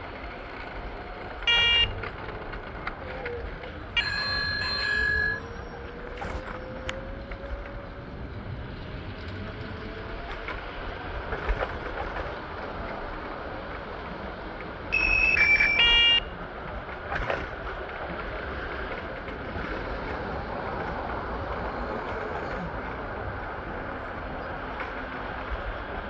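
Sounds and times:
city traffic noise: 0.0 - 26.0
vehicle horn honking: 1.4 - 2.0, 15.0 - 16.3.

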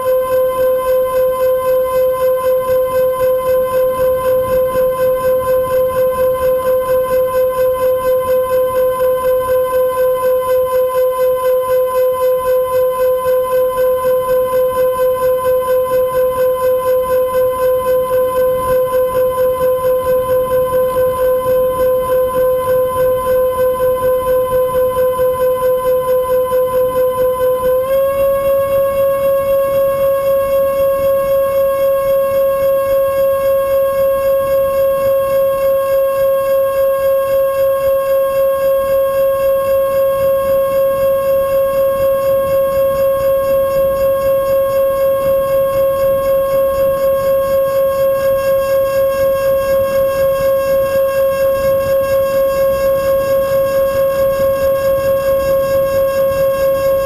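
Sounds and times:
electric ducted fans whining: 17.5 - 57.0.

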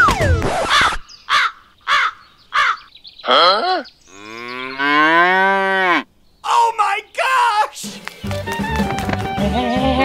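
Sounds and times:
crow cawing: 0.8 - 2.9
cow mooing: 3.3 - 6.1.

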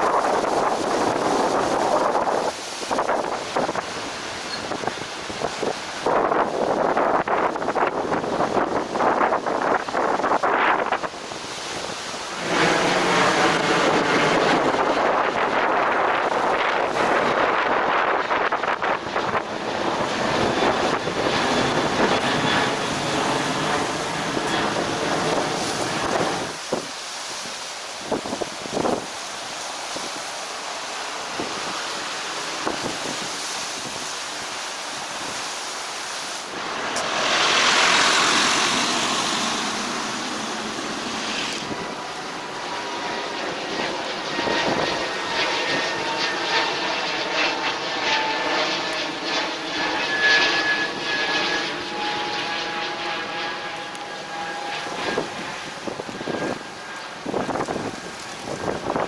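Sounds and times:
aircraft engine whine: 0.0 - 59.0
aircraft flying low overhead: 0.0 - 59.0.

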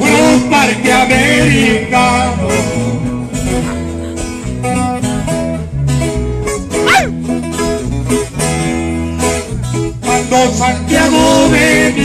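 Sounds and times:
guitars picking and strumming: 0.0 - 12.0
steady bass line: 0.1 - 12.0.

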